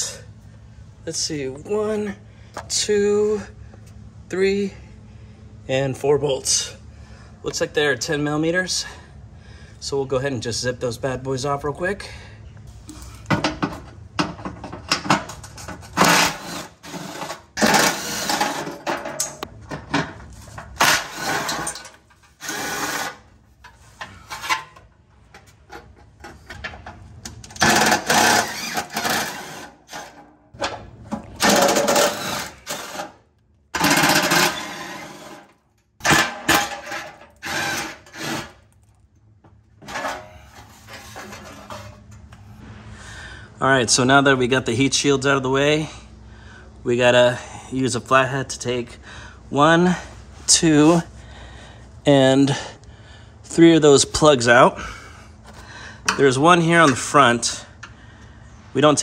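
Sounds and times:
power driver spinning bolts: 13.4s - 33.2s, 33.8s - 38.7s.

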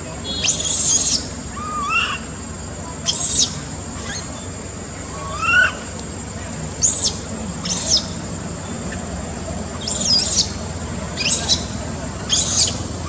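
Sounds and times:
infant monkey squealing: 0.3s - 2.3s, 3.0s - 4.4s, 5.1s - 5.9s, 6.8s - 8.2s, 9.8s - 10.6s, 11.2s - 11.7s, 12.3s - 12.8s.

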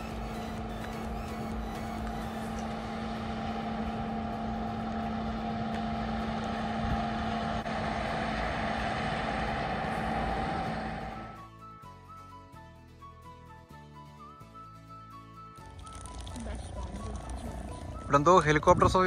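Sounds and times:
steady engine drone: 0.0s - 11.6s, 15.7s - 19.0s.

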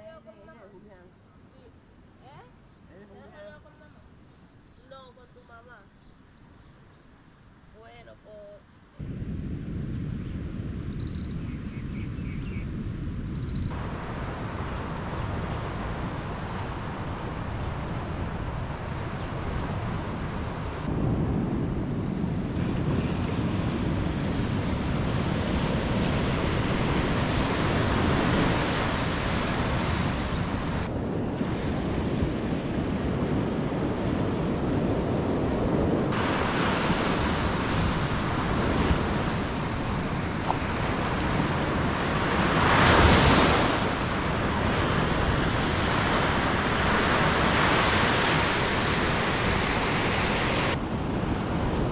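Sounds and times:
wind on microphone: 9.0s - 51.9s
ocean surf on beach: 12.8s - 51.9s.

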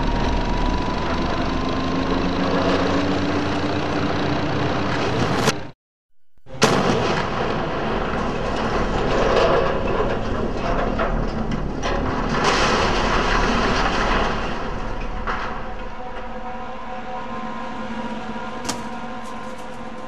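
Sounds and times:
demolition blast bang: 6.5s - 10.6s
rumble of collapsing tower: 6.5s - 17.0s.

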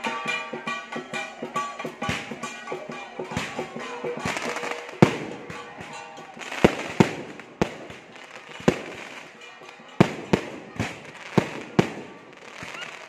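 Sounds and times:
fireworks bangs: 3.3s - 13.0s.

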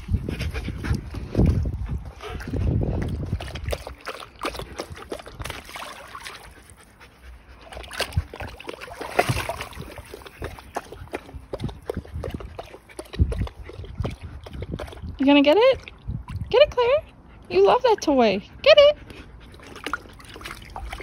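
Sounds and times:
dogs panting: 0.0s - 5.4s, 6.1s - 15.9s, 16.8s - 21.0s
water sloshing: 0.0s - 18.4s, 19.0s - 21.0s
short splashes: 3.2s - 6.7s, 7.6s - 16.6s.

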